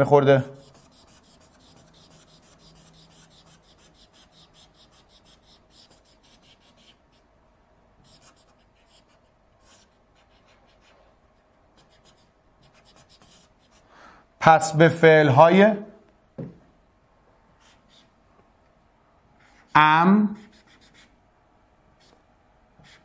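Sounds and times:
pen scratching on touchscreen: 0:00.4 - 0:07.3, 0:08.0 - 0:13.8, 0:17.6 - 0:18.1, 0:20.4 - 0:21.2, 0:22.0 - 0:22.2, 0:22.8 - 0:23.0.

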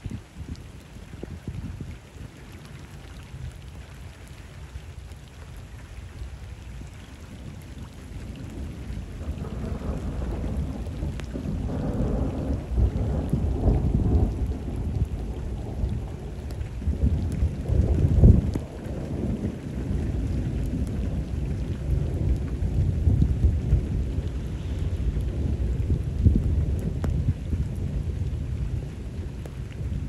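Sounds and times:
rain falling on water: 0:00.0 - 0:30.0
thunder rumbling: 0:08.3 - 0:30.0.

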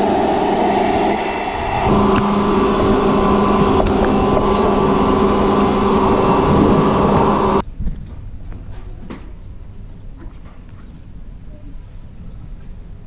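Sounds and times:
pressure washer pump humming: 0:00.0 - 0:07.6
water jet hissing: 0:00.0 - 0:07.6.

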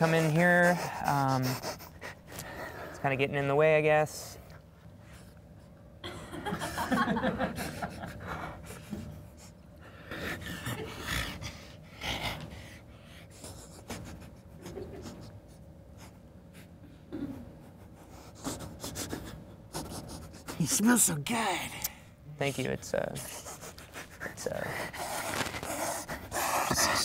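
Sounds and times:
man panting: 0:00.0 - 0:03.0, 0:23.2 - 0:27.0.

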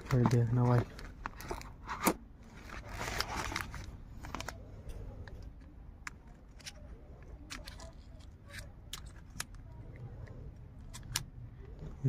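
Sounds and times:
rustling: 0:00.0 - 0:05.4
sharp plastic clicks: 0:05.2 - 0:11.8.

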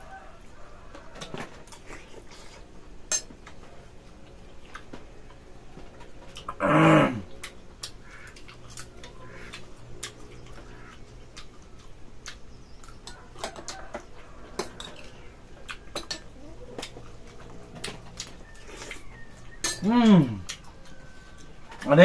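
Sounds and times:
faint steady hum: 0:00.0 - 0:22.0
spoons clinking against bowls: 0:19.5 - 0:20.3.

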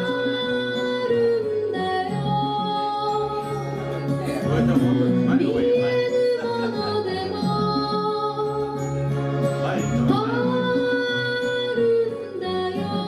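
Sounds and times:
girl singing slow song: 0:00.0 - 0:03.8, 0:10.1 - 0:13.0
instrumental accompaniment: 0:00.0 - 0:13.0.

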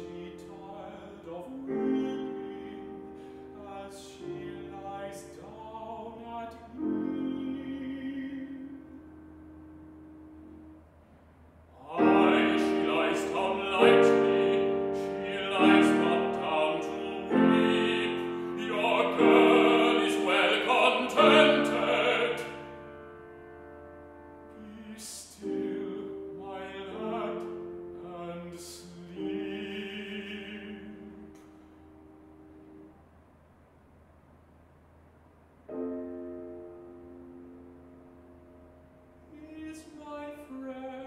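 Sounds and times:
man singing classical song: 0:00.0 - 0:09.2, 0:11.8 - 0:22.9, 0:24.4 - 0:31.4, 0:39.3 - 0:41.0
grand piano accompaniment: 0:00.0 - 0:11.0, 0:11.8 - 0:33.0, 0:35.7 - 0:41.0.

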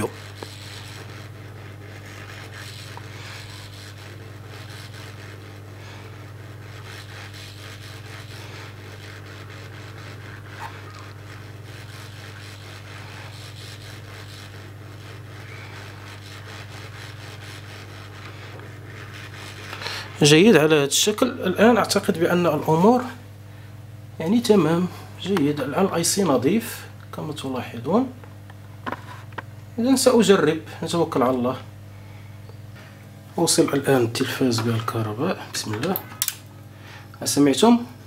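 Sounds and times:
brush scrubbing circuit board: 0:00.0 - 0:20.7
low electrical hum: 0:00.0 - 0:38.0.

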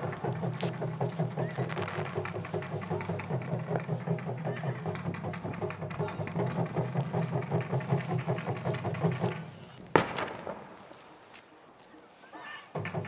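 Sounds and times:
taiko drums beating: 0:00.0 - 0:10.8, 0:12.7 - 0:13.0
firework shell bang: 0:09.2 - 0:10.9.

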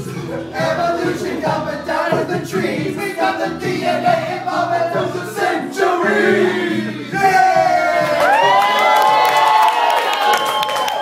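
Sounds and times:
group of voices singing: 0:00.0 - 0:08.2.

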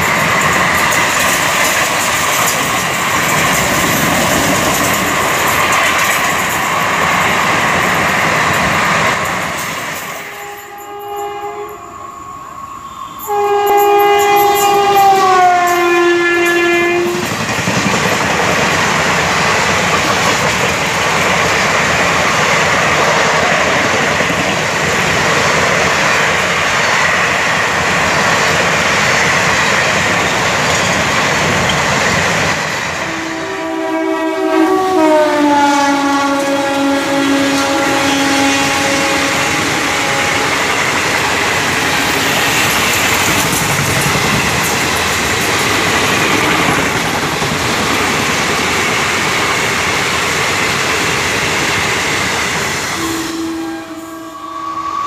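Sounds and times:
coaches clattering over rail joints: 0:00.0 - 0:10.4, 0:17.1 - 0:26.4, 0:40.6 - 0:49.4
train horn: 0:10.0 - 0:17.4, 0:32.9 - 0:43.0, 0:52.9 - 0:55.0.

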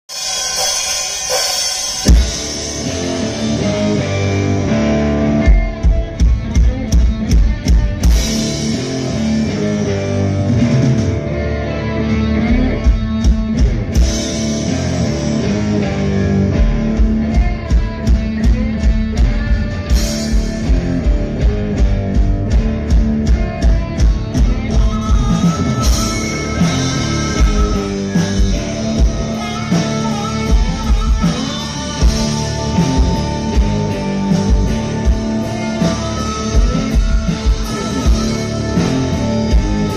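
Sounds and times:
drum kit beat: 0:00.0 - 0:11.2, 0:12.3 - 0:15.7, 0:16.4 - 0:39.9
bass guitar: 0:00.0 - 0:39.9
electric guitars: 0:00.0 - 0:39.9
harmonica held notes: 0:24.1 - 0:39.9.

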